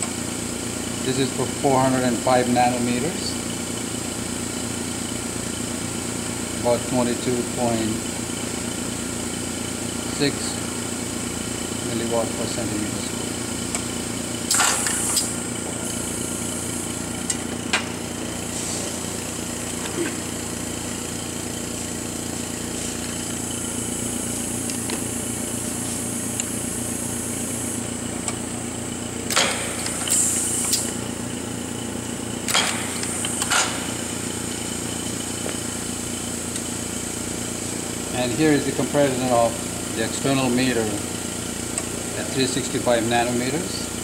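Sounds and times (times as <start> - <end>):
lab equipment machine hum: 0.0 - 44.0.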